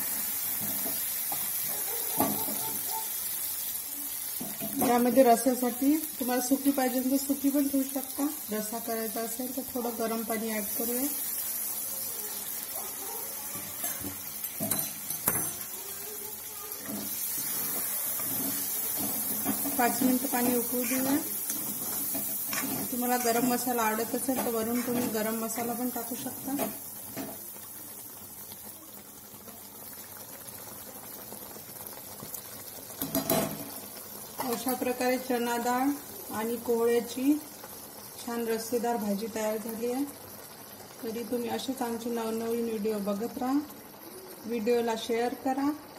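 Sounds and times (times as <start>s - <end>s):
curry bubbling in a pan: 0.0s - 45.9s
metal clinking against pan: 13.6s - 15.7s.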